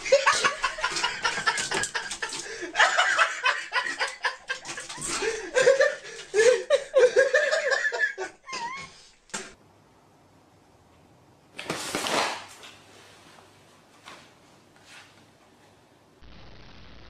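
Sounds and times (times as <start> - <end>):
person chuckling: 0.0 - 9.5
bottles knocking and rattling: 0.4 - 2.6.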